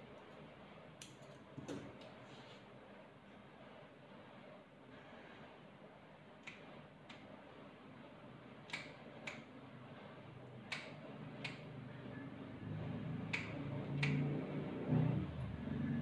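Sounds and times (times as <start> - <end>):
grooming tool clicking: 13.3 - 14.2.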